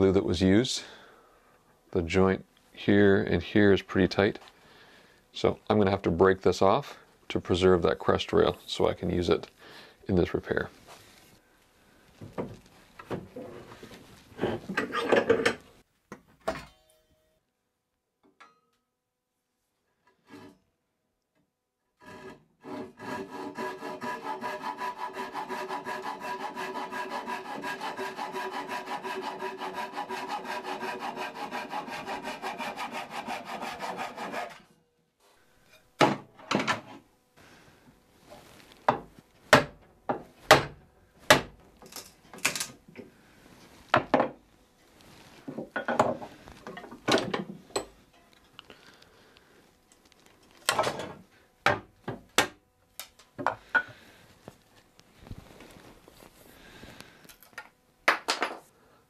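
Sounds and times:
hand saw cutting wood: 22.0s - 34.7s.

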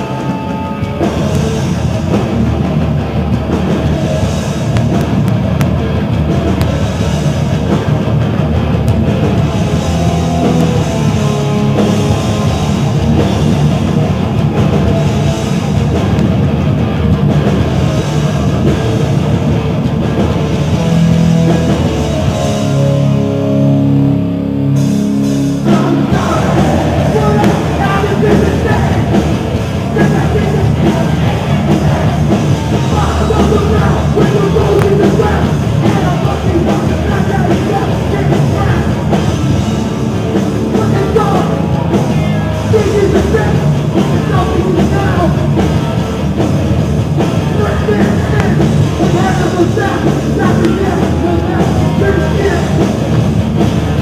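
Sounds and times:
punk band playing live: 0.0s - 54.0s
shouted vocals: 25.6s - 39.2s, 40.6s - 45.9s, 47.4s - 53.1s.

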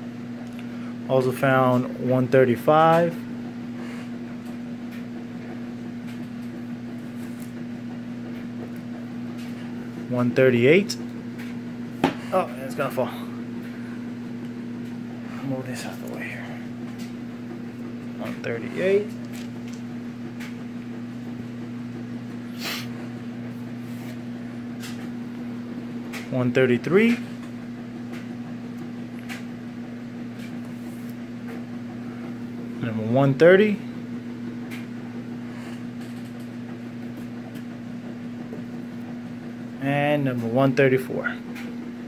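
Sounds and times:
steady low hum: 0.0s - 42.0s
person sniffing: 22.5s - 23.0s.

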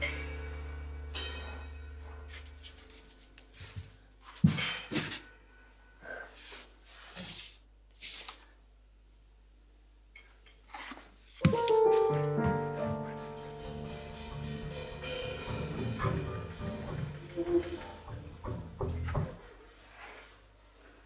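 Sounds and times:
keyboard chord: 11.5s - 19.0s.

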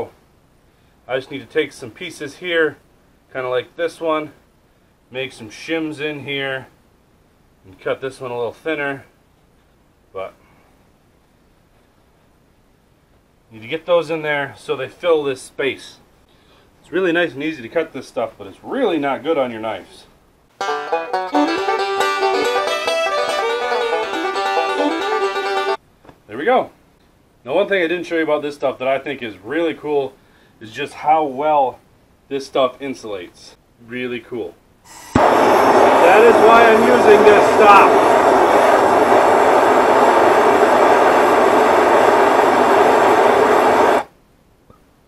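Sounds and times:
plucked string music: 20.6s - 25.8s
torch flame roaring: 34.9s - 44.1s.

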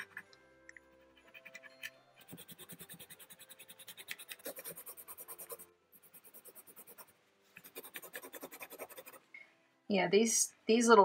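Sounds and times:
pencil scratching on paper: 1.0s - 9.2s.

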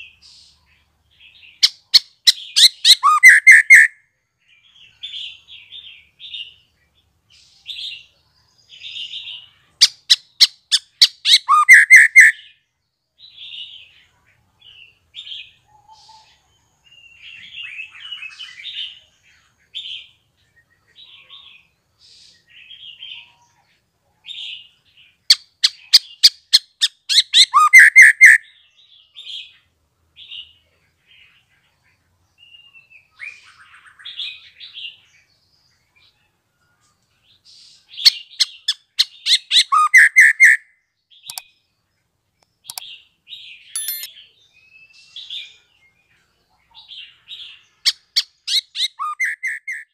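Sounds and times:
bird chirping and whistling: 2.3s - 3.9s, 9.8s - 12.4s, 25.6s - 28.4s, 38.0s - 40.6s, 43.7s - 44.1s, 47.9s - 49.9s
sharp loud bird clicks: 41.2s - 41.5s, 42.4s - 43.0s.

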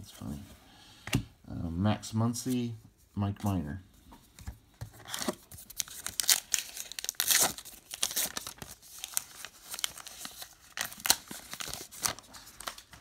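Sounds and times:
card pack wrapper tearing: 5.0s - 13.0s.

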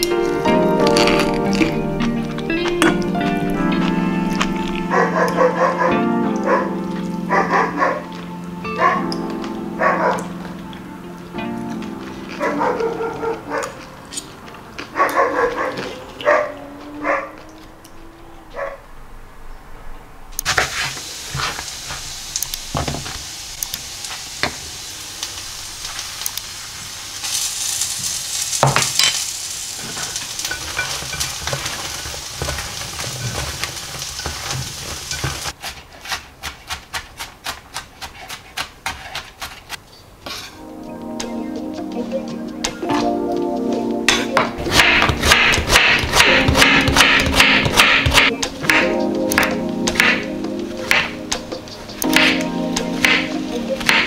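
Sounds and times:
steady hiss: 20.3s - 35.6s
knife chopping on wooden board: 35.6s - 39.7s, 44.7s - 50.2s, 50.9s - 51.1s.

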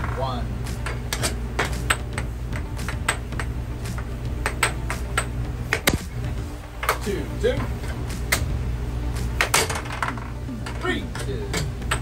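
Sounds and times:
steady low hum: 0.0s - 12.0s
air hockey puck clacking: 0.8s - 6.1s, 9.4s - 12.0s.

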